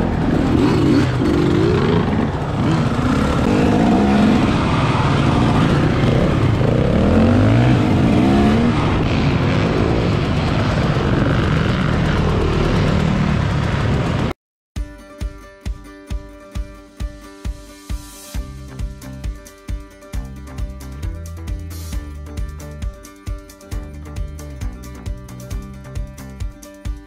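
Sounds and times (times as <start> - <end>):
motorcycle engine revving: 0.0 - 14.4.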